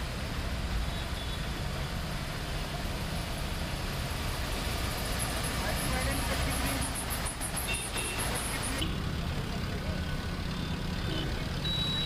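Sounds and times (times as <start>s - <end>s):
car engines running: 1.5s - 12.0s.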